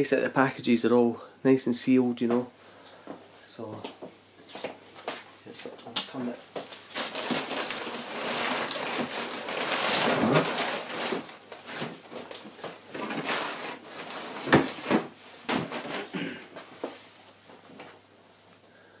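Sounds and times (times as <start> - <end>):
packing paper rustling and crackling: 6.2 - 17.9.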